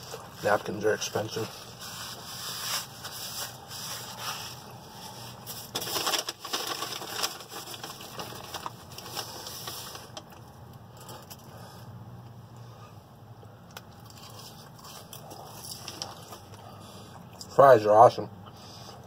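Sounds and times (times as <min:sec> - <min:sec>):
paper rustling and crumpling: 0:01.2 - 0:10.3.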